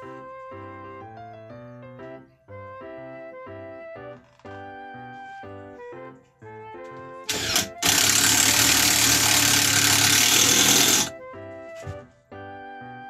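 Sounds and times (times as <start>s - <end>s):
cordless drill running: 7.3s - 11.1s.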